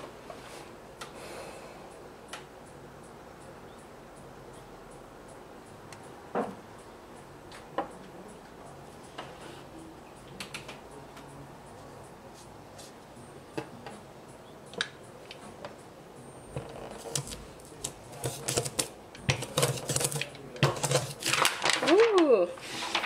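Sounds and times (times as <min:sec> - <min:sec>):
ink roller clicking and rattling: 0:18.2 - 0:23.0.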